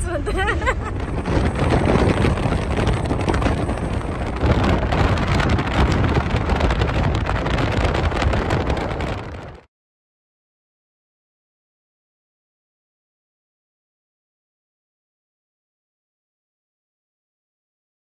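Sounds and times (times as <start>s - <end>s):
car road noise: 0.0s - 9.7s
wind buffeting microphone: 0.0s - 9.7s.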